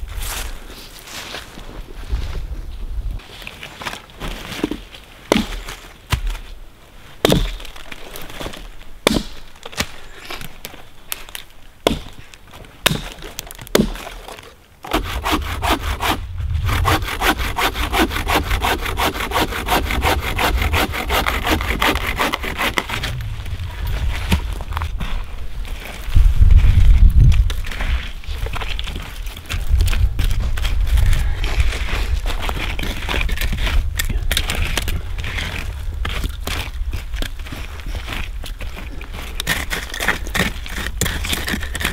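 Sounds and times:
hand saw cutting wood: 14.8 - 23.1.

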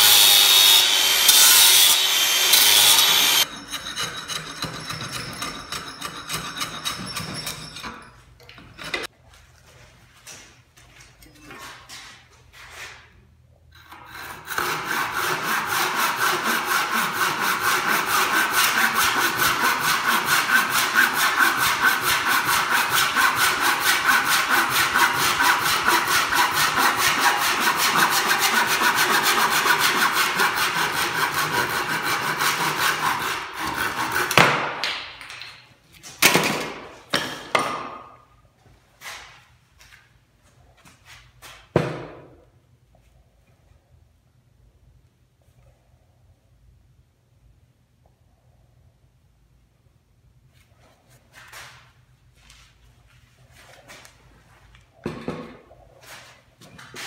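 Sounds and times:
hand saw cutting wood: 0.0 - 7.6, 13.8 - 34.7.

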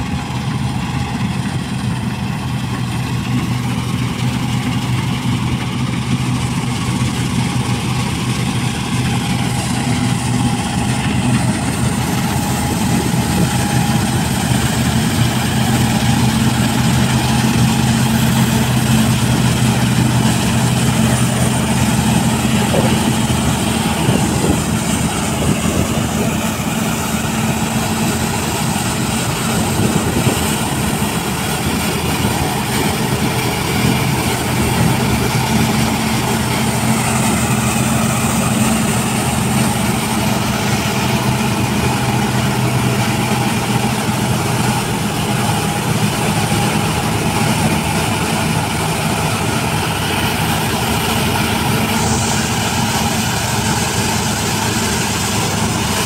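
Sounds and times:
combine harvester running: 0.0 - 56.0.

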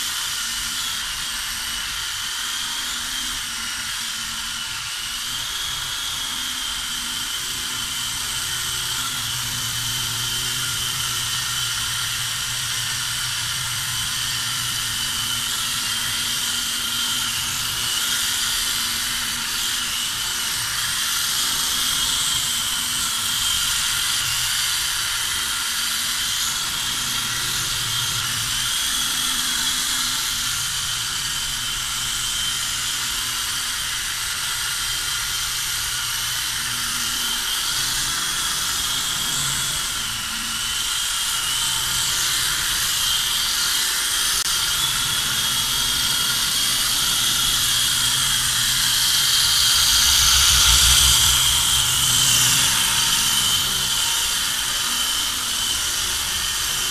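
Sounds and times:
toy helicopter rotor whine: 0.0 - 56.9
low rumble: 48.8 - 54.2.

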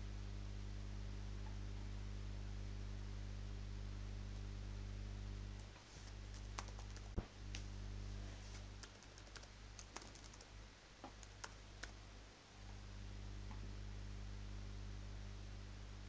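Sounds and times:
keyboard typing: 6.0 - 7.2, 8.8 - 12.0.

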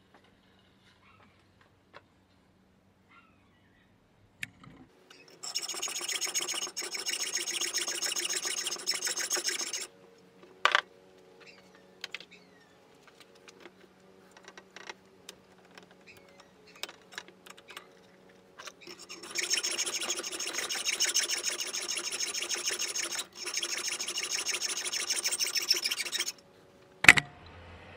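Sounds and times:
hacksaw cutting metal bolt: 5.3 - 9.9, 18.6 - 26.4.

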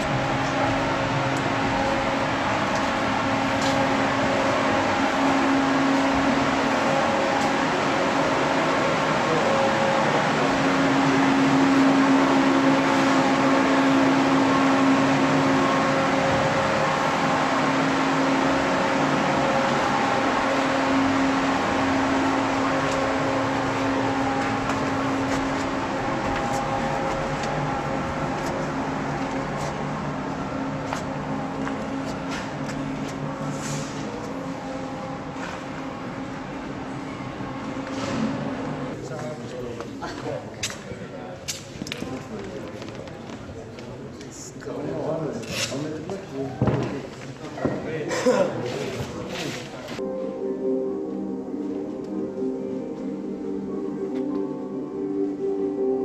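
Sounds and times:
fan humming: 0.0 - 40.6.

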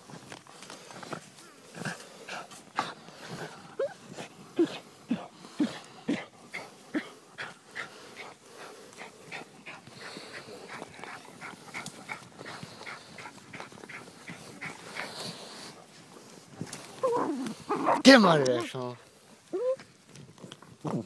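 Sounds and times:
dog sniffing: 1.8 - 18.7
dog whining: 17.0 - 18.1, 19.5 - 19.8.

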